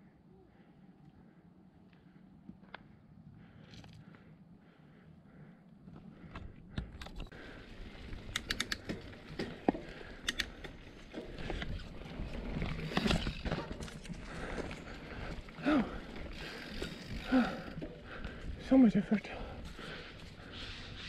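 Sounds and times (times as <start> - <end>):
bike clicks and rattles: 5.9 - 18.6.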